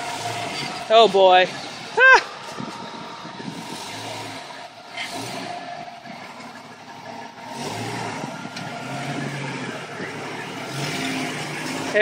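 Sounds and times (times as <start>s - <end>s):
car engine revving: 0.0s - 12.0s.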